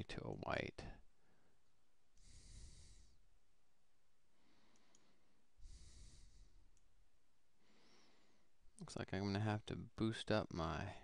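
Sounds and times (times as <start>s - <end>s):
breaths into microphone: 2.2s - 3.2s, 4.4s - 6.6s
mouse clicks: 4.7s - 5.1s.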